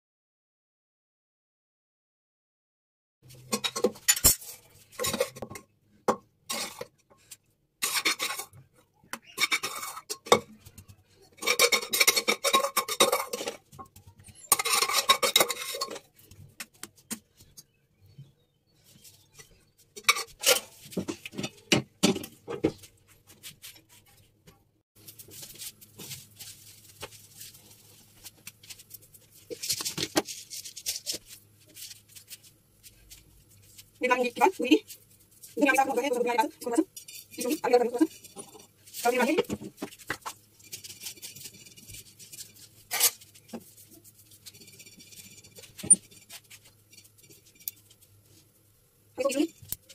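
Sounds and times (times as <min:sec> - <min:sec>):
spoon scraping and clinking on pots: 0:03.3 - 0:17.2, 0:19.4 - 0:22.9, 0:32.2 - 0:48.5.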